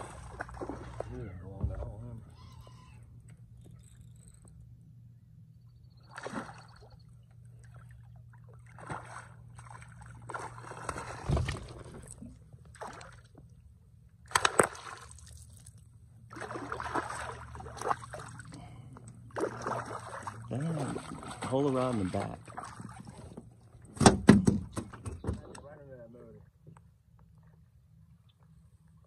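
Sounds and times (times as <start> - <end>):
fish thrashing and splashing: 0.0 - 1.2, 8.5 - 13.3, 14.3 - 18.6, 19.3 - 23.3.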